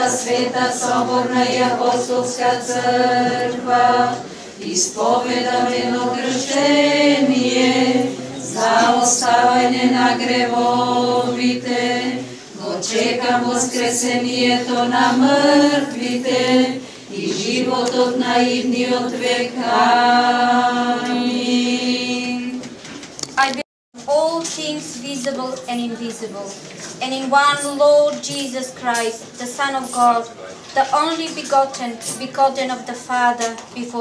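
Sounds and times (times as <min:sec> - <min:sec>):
voices singing a cappella chant: 0:00.0 - 0:22.8.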